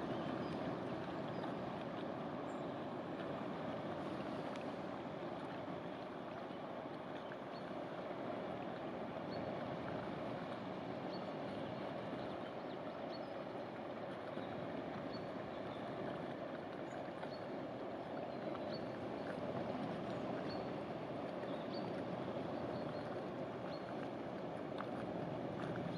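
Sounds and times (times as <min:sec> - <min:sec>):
water rushing along hull: 0:00.0 - 0:25.9.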